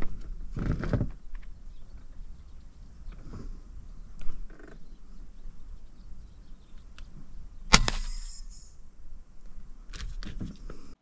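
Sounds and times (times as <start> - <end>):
air rifle shot: 7.7 - 8.8
short hiss: 7.7 - 8.9.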